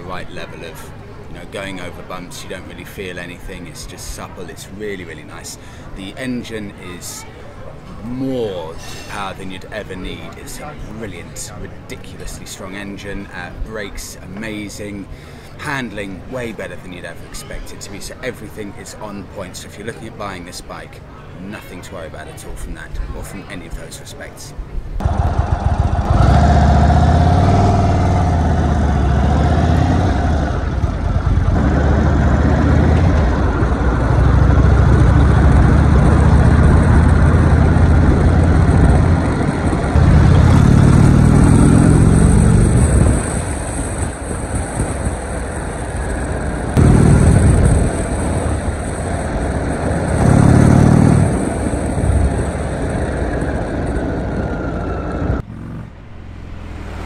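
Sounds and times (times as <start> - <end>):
motorcycle engine accelerating: 25.0 - 57.0.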